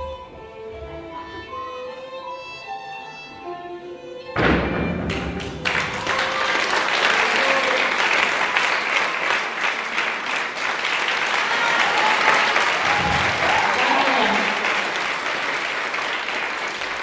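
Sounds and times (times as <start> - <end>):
music: 0.0 - 6.4
audience applauding: 5.1 - 17.0.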